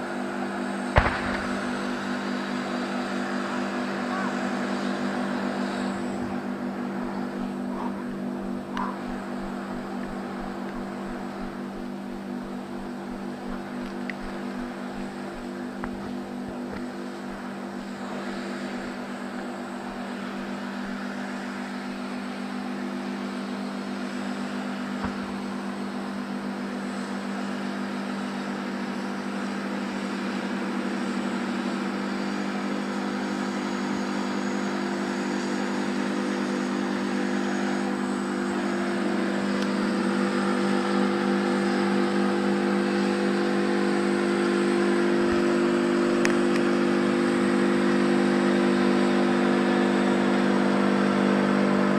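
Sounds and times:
tank diesel engines running: 0.0 - 51.9.

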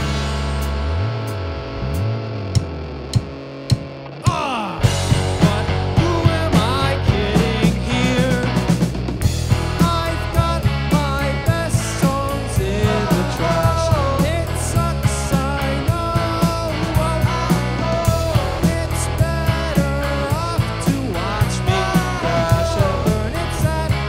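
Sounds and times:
rock band playing live: 0.0 - 24.0
sung vocals: 4.2 - 24.0.

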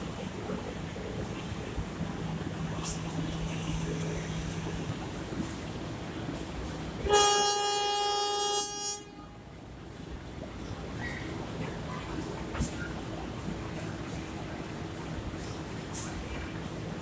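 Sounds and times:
low rumble of standing train: 0.0 - 17.0
train horn blast: 7.0 - 9.5.

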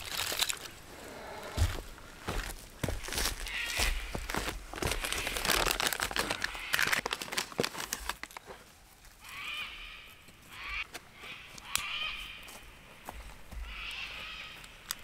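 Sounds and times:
plastic packet crinkling: 0.0 - 0.7, 4.7 - 8.5.

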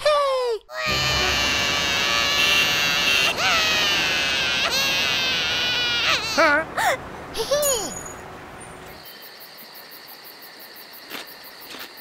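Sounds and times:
cartoon sheep crying: 0.7 - 6.6
dense background din: 0.8 - 3.6.

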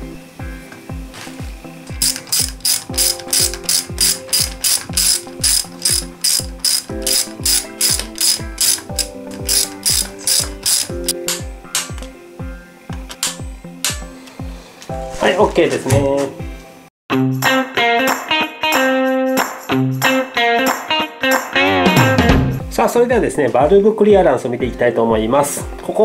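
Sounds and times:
background music with beat: 0.0 - 26.0
ratchet wrench clicking: 1.9 - 12.1.

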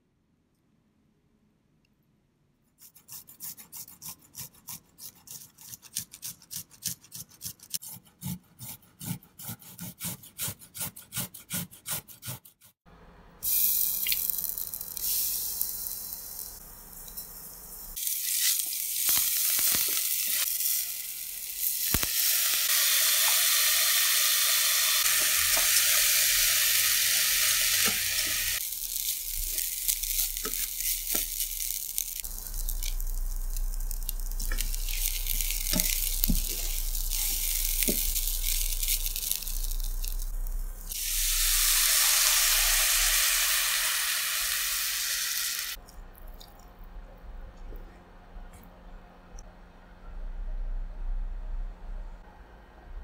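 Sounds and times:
garlic grated on metal grater: 2.8 - 12.7
garlic sizzling in hot oil: 13.4 - 45.8.

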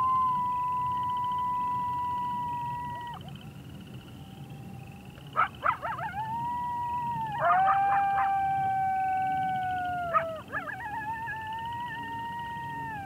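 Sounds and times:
coyote howling: 0.0 - 3.4, 5.3 - 13.0
coyote yipping: 5.4 - 6.6, 9.4 - 13.0.

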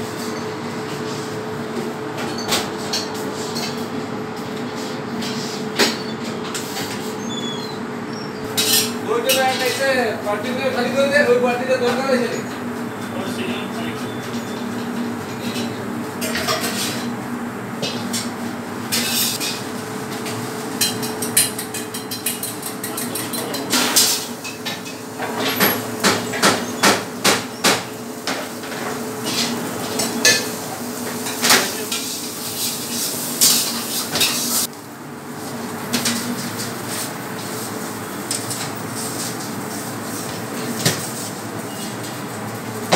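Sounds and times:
metal pans and utensils clinking: 14.8 - 17.1, 20.8 - 25.8.

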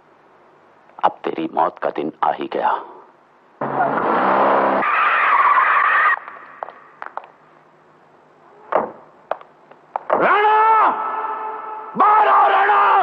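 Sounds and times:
tyres squealing: 3.6 - 6.8.

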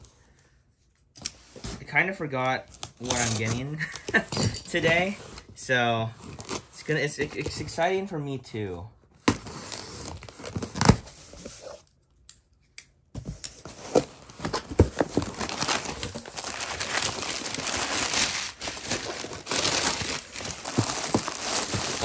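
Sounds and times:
packing tape and cardboard tearing: 2.7 - 5.2, 6.2 - 6.8, 9.2 - 11.9, 13.2 - 22.0
paper and bubble wrap crinkling: 13.6 - 22.0.

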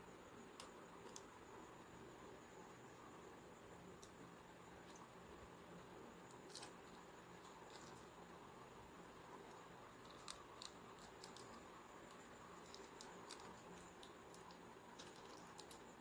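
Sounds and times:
small clicks and taps: 0.6 - 1.3, 10.0 - 15.9.

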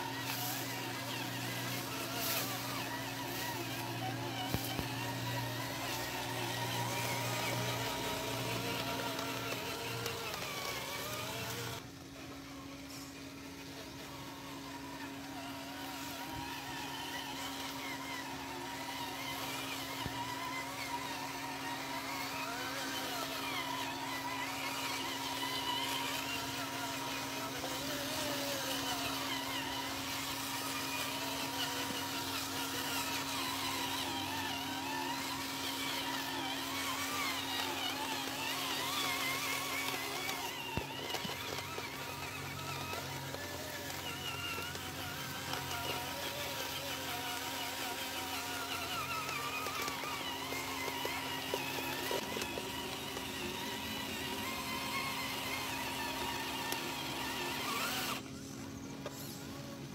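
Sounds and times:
electric motor whining: 0.0 - 59.9.

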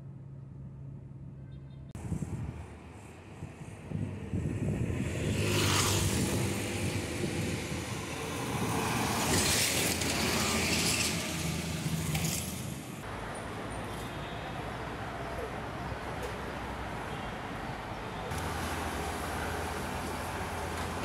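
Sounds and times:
traffic engine hum: 0.0 - 21.0
tyres hissing on road: 16.3 - 21.0.

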